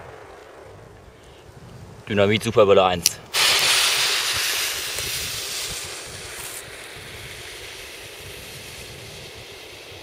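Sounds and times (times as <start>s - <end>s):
firecracker fuse fizzing: 3.0s - 10.0s.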